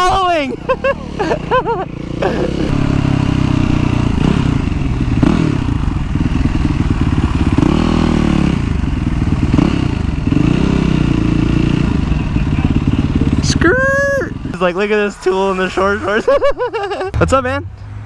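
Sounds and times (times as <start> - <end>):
motorcycle engine revving: 0.0 - 15.6.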